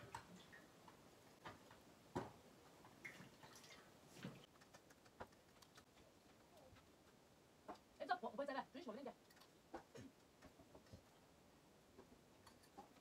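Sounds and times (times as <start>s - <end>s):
faint clicks and knocks: 9.2s - 11.2s, 11.9s - 13.0s.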